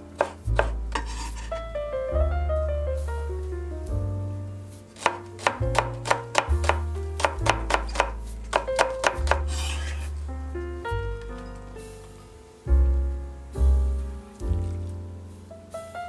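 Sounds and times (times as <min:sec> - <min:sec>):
background music with bass line: 0:00.0 - 0:16.0
knife chopping on wooden board: 0:00.2 - 0:01.6, 0:05.0 - 0:10.1.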